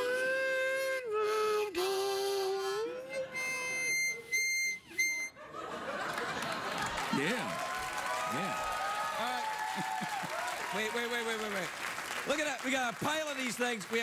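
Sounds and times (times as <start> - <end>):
audience applause: 5.8 - 14.0.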